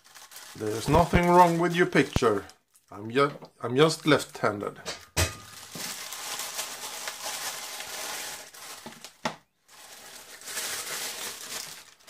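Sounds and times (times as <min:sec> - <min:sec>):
plastic packaging crinkling: 0:00.0 - 0:02.9, 0:05.4 - 0:12.0.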